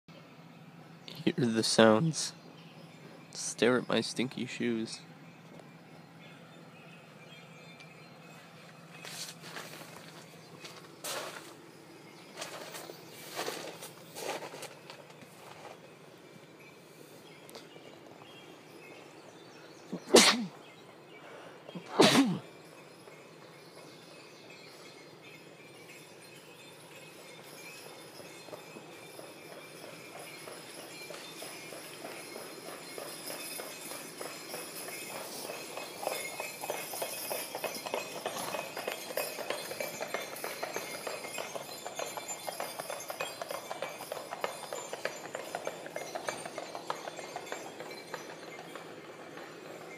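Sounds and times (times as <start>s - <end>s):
horse hooves clip-clopping on road: 4.9s - 19.8s, 22.4s - 49.9s
sharp hissing vocal bursts: 19.9s - 20.6s.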